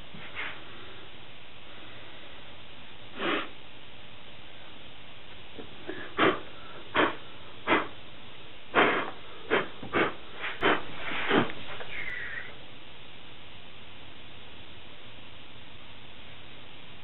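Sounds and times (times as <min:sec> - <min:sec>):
breathy puffs of air: 0:03.1 - 0:03.6, 0:05.8 - 0:08.0, 0:08.7 - 0:12.6.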